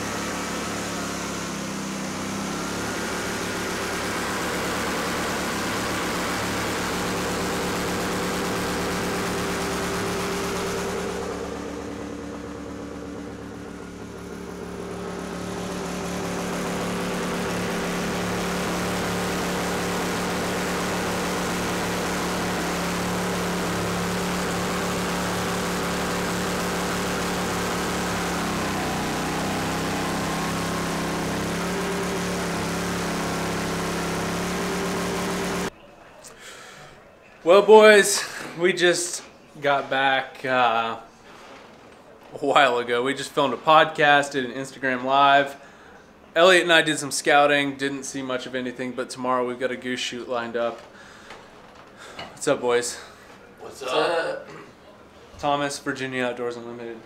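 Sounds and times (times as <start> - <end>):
boat motor droning: 0.0 - 35.7.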